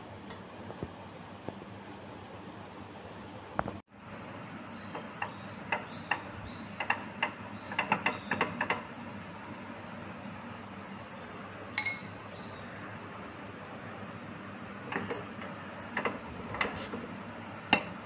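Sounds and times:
spoon clinking on a glass bowl: 11.8s - 12.2s.

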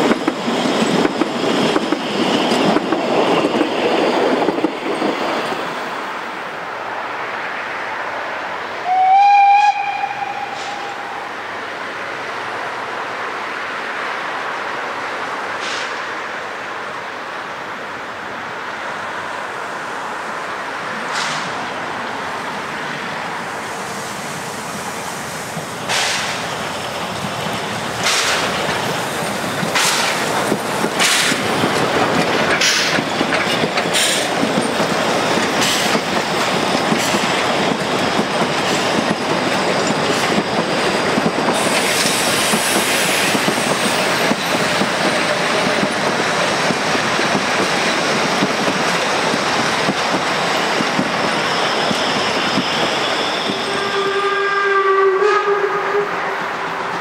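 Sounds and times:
steam train rumbling past: 0.0s - 57.0s
wheels clacking over rail joints: 25.8s - 53.7s.

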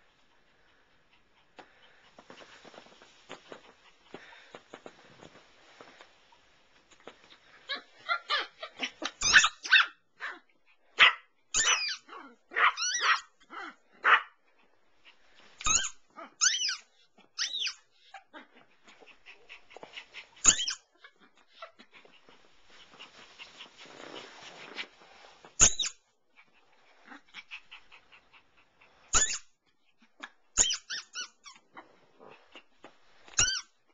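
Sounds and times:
small dog barking and yipping: 7.6s - 14.4s, 15.6s - 22.4s, 29.1s - 29.5s, 30.2s - 31.8s.

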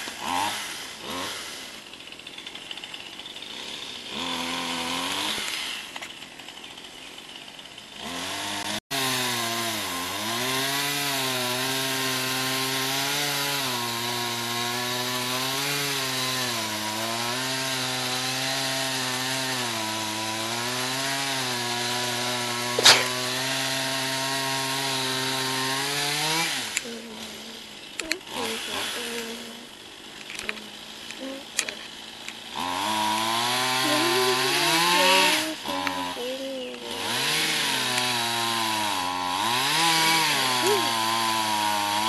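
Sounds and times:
chainsaw running: 0.0s - 42.0s
sharp crack: 22.6s - 23.5s.

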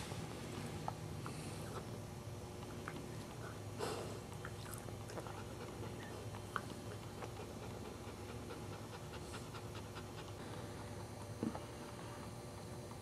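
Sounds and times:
dog panting: 5.1s - 13.0s.

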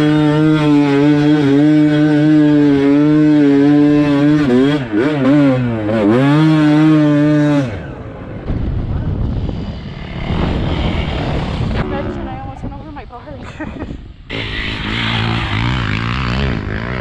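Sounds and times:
dirt bike engine revving: 0.0s - 8.4s, 14.2s - 17.0s
rushing noise: 8.1s - 13.0s.

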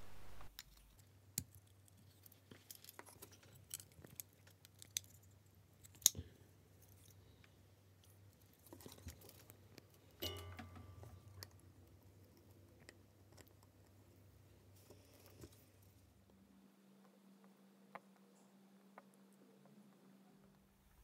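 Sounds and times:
low hum: 0.0s - 0.5s.

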